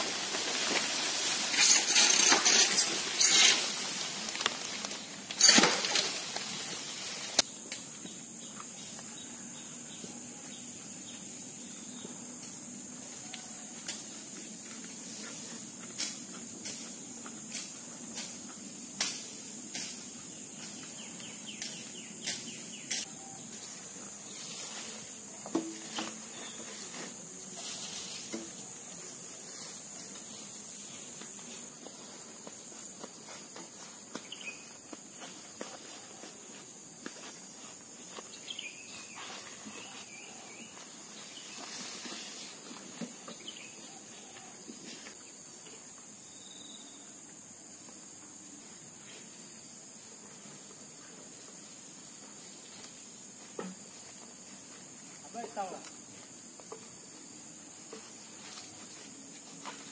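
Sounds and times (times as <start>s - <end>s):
insect chirring: 0.0s - 59.9s
snaps and rustles in brush: 0.2s - 7.9s, 15.9s - 20.8s.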